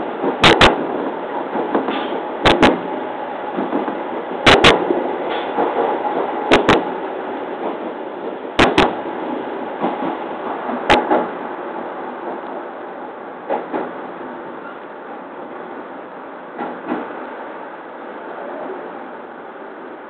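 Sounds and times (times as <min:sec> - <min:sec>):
train running noise: 0:00.0 - 0:20.0
train wheels clacking over rail joints: 0:00.2 - 0:07.0, 0:07.6 - 0:11.4, 0:13.5 - 0:14.8, 0:16.6 - 0:17.2.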